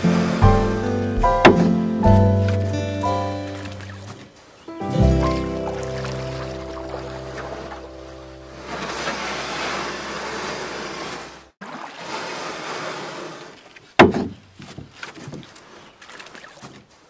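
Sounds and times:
kayak rushing hiss: 0.0s - 2.0s, 5.4s - 13.6s
water lapping and splashing: 0.0s - 17.0s
loud sudden knock: 0.4s - 1.9s
small splashes: 2.4s - 17.0s.

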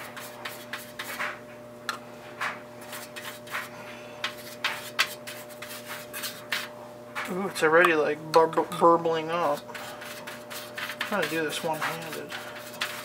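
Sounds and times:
scratchy brush strokes on metal: 2.8s - 6.7s, 9.4s - 13.0s.

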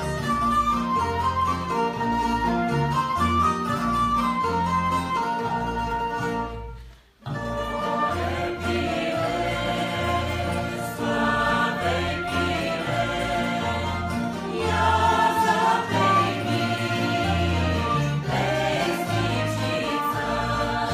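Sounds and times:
plucked string accompaniment: 0.0s - 20.9s
vocal ensemble singing: 7.3s - 20.9s.

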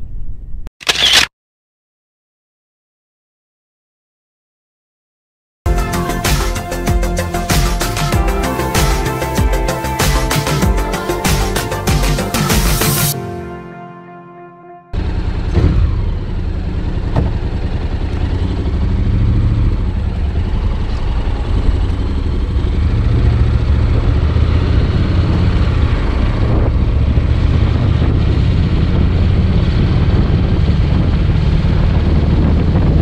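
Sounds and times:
motorcycle engine running: 15.0s - 33.0s
wind rush on microphone: 23.0s - 33.0s.

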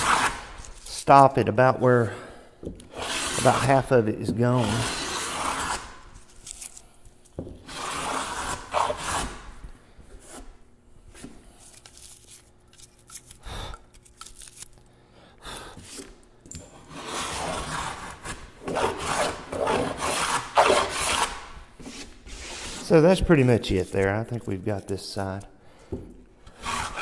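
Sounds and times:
hand plane shaving wood: 0.0s - 0.5s, 2.9s - 6.0s, 7.7s - 9.5s, 16.9s - 23.0s, 26.5s - 27.0s.

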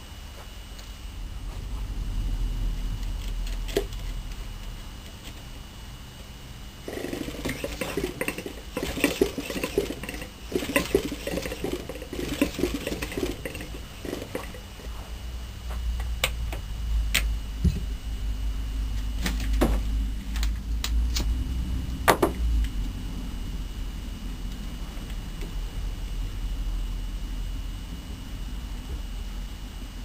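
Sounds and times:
low rumble: 1.0s - 5.9s, 19.8s - 30.0s.

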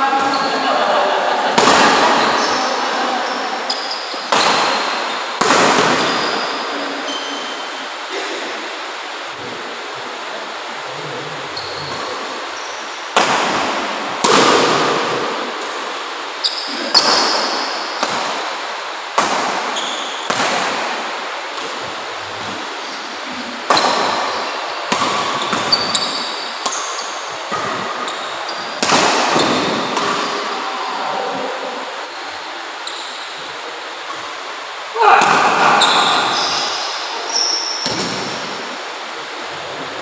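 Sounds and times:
shoes squeaking on court: 2.2s - 4.9s, 25.4s - 30.5s
rackets hitting shuttlecock: 13.2s - 15.9s, 23.7s - 24.3s, 24.9s - 30.5s.

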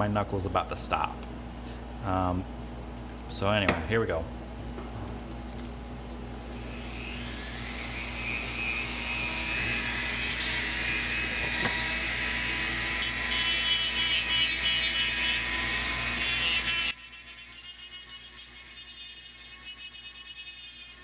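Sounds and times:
rotary tool high whine: 6.5s - 21.0s
sanding drum grinding plastic: 13.0s - 21.0s.

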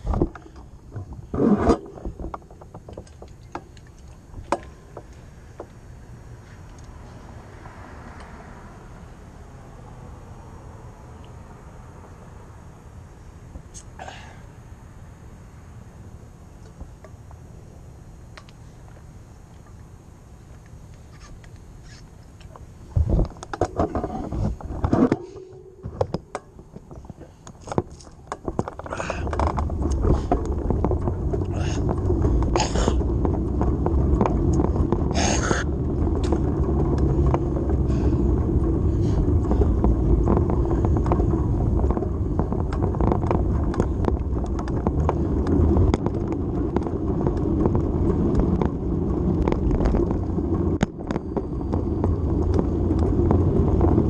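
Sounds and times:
bicycle clicks and rattles: 0.0s - 7.0s, 20.5s - 54.0s
tyres rumbling on pavement: 0.0s - 20.9s, 21.8s - 54.0s.

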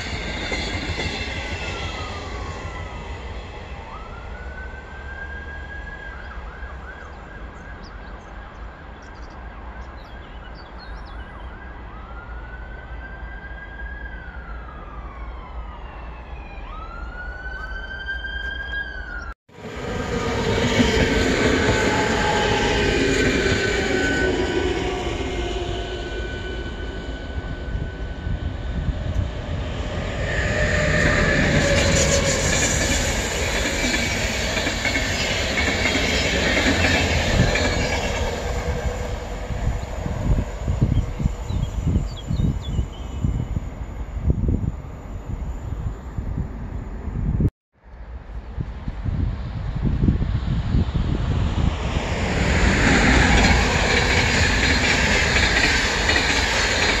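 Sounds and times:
high ringing rail tones: 0.0s - 6.5s, 17.6s - 47.2s, 51.7s - 57.0s
train passing: 0.0s - 10.5s, 14.6s - 47.4s, 48.8s - 57.0s
distant siren wailing: 0.0s - 46.0s, 52.3s - 57.0s.

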